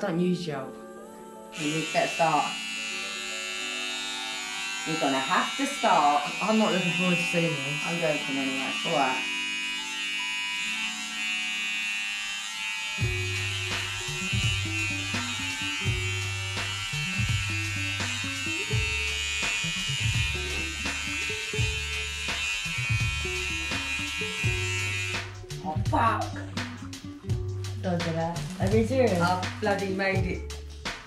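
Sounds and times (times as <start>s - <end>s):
electric hair clippers buzzing: 1.6s - 25.6s
background music with beat: 22.2s - 31.0s.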